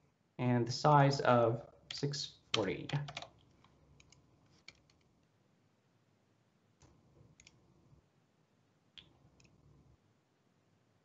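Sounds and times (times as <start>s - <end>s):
faint keyboard keystrokes: 2.5s - 5.1s.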